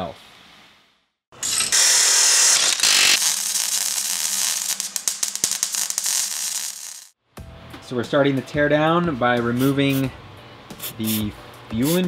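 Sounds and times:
abrasive disc cutting metal: 1.4 - 7.1.

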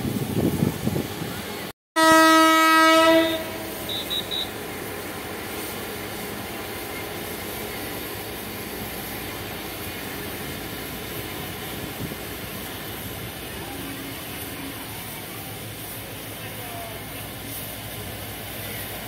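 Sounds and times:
distant diesel locomotive running: 0.0 - 19.0
train horn: 2.0 - 4.5.

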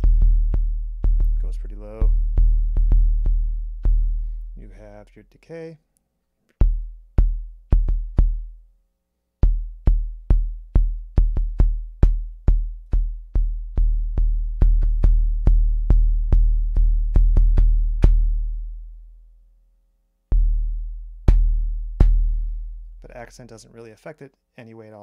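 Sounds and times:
drum machine kick drum thumps: 0.0 - 5.0, 6.5 - 8.6, 9.4 - 18.8, 20.3 - 23.4.

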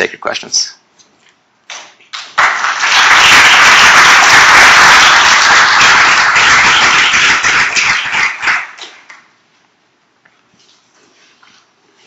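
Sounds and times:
audience applauding: 2.1 - 9.3.

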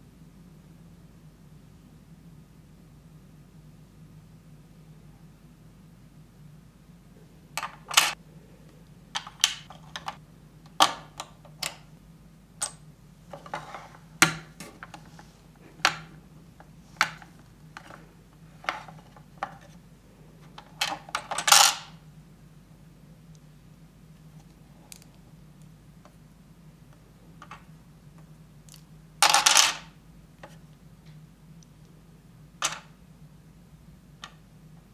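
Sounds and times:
plastic parts clicking and tapping: 9.2 - 11.9.

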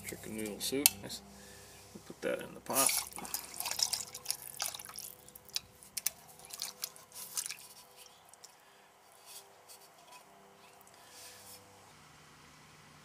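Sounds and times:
soup splatting into metal pot: 2.8 - 5.6.

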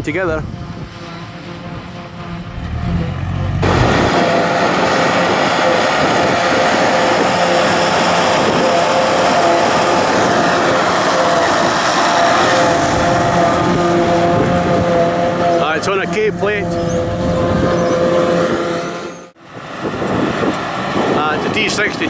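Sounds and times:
forage harvester chopping drone: 0.0 - 22.0
steady machine whine: 0.0 - 22.0
tractor engine running: 0.0 - 22.0.

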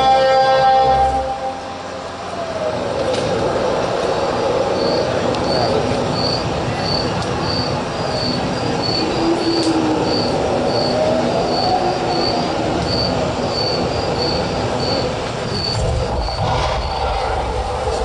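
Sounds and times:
train-like rumble: 0.0 - 18.0
faint sliding squeals: 4.0 - 17.0.

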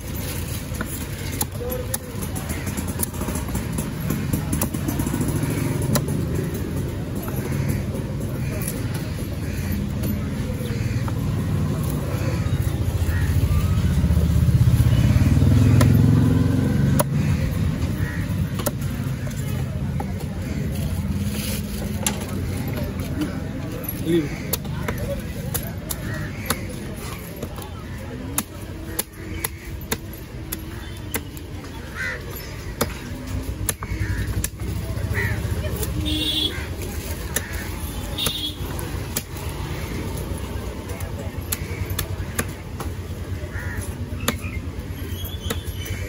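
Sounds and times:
engine rumbling: 0.0 - 46.0
cleaver chopping on wooden block: 41.4 - 43.0.

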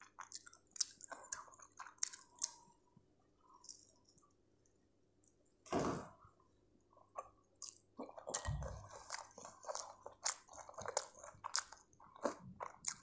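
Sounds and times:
chewing mouth sounds: 7.2 - 13.0.

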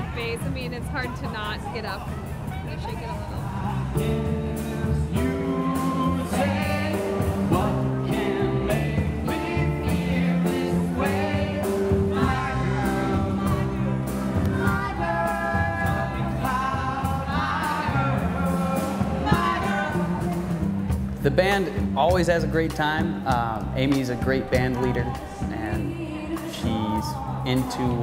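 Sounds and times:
live band playing dance music: 0.0 - 28.0
women singing into microphone: 25.1 - 27.4.

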